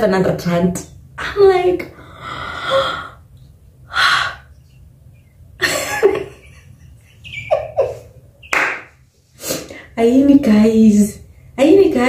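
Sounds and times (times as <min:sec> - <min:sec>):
woman gasping: 0:02.0 - 0:03.2.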